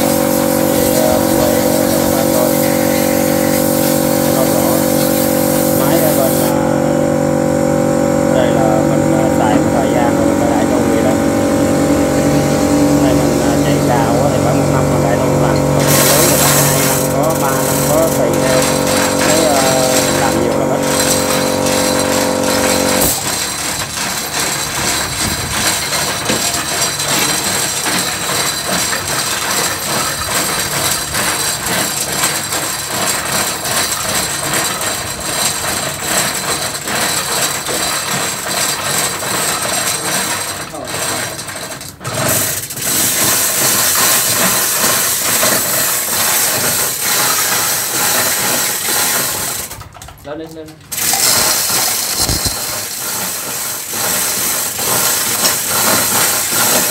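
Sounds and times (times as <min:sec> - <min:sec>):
steady hum: 0:00.0 - 0:23.8
machinery rattling: 0:00.0 - 0:56.9.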